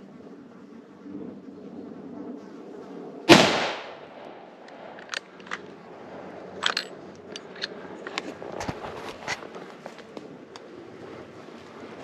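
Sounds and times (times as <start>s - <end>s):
rifle shot echoing: 3.3s - 5.4s
sharp clicks: 3.4s - 5.6s.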